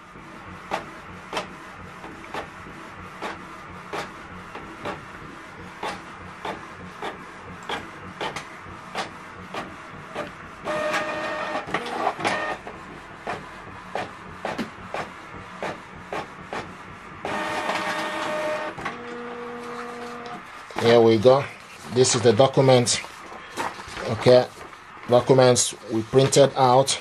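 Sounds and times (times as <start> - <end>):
printer mechanical hum: 0.0 - 27.0
printer whir: 0.0 - 27.0
printer clicking: 5.8 - 21.2.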